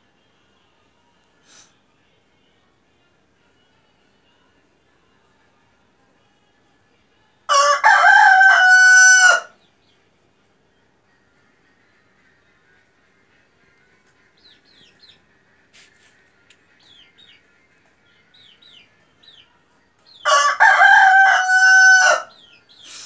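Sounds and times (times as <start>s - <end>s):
rooster crowing: 7.5s - 9.5s, 20.2s - 22.4s.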